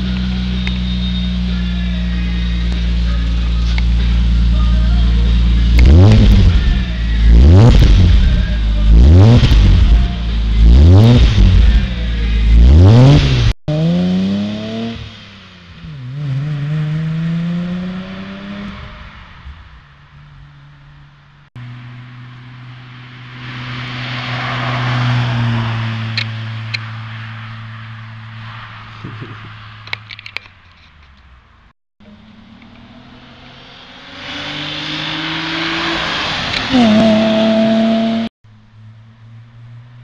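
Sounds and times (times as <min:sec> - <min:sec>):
car engine revving: 0:00.0 - 0:30.2, 0:32.0 - 0:40.0
tyre and road noise: 0:00.0 - 0:40.0
car driving past: 0:21.6 - 0:29.9.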